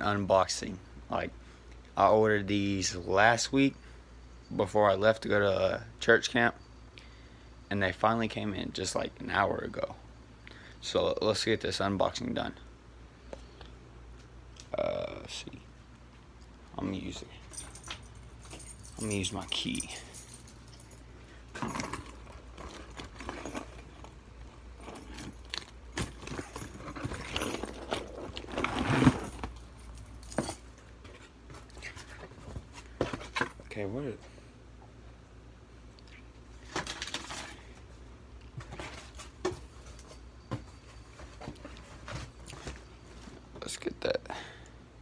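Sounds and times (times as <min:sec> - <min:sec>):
key ring jangling: 0:17.4 - 0:22.3
cardboard boxes rustling and scraping: 0:21.5 - 0:29.7, 0:31.0 - 0:33.7, 0:38.6 - 0:43.5.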